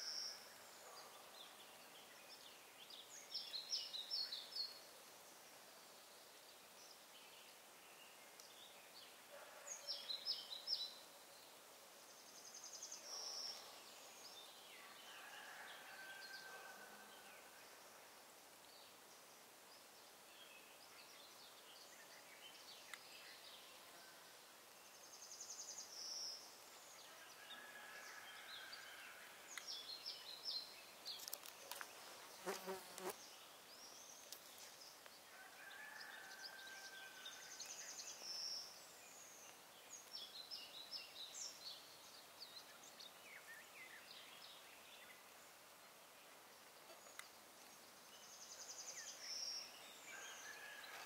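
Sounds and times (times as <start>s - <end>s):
flying insect buzzing: 32.4s - 33.2s.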